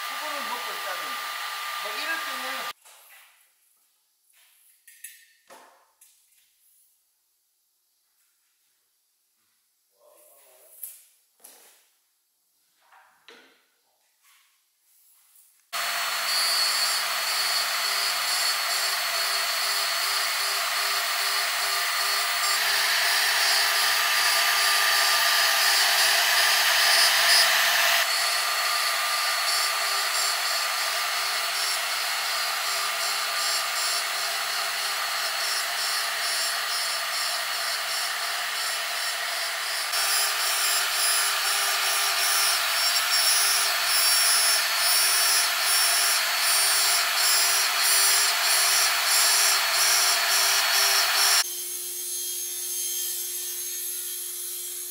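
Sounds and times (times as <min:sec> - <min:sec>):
cnc router cutting wood: 0:00.0 - 0:02.8, 0:15.8 - 0:54.9.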